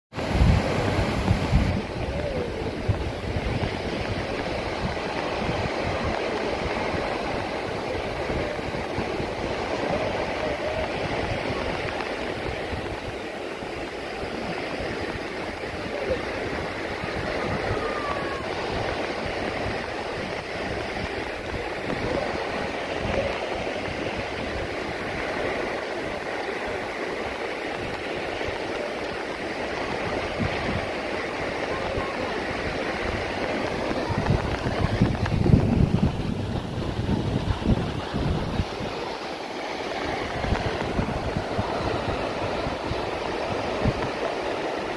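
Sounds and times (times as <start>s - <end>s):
sea waves washing on beach: 0.1s - 44.9s.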